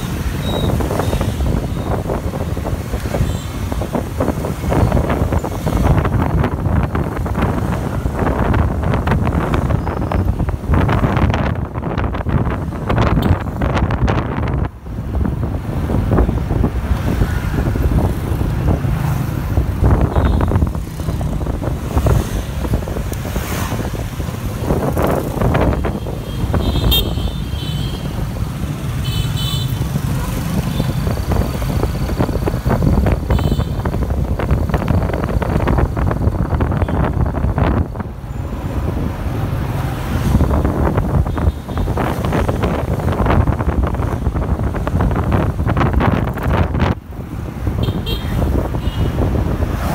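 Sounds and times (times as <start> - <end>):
wind on microphone: 0.0 - 29.0, 29.8 - 49.9.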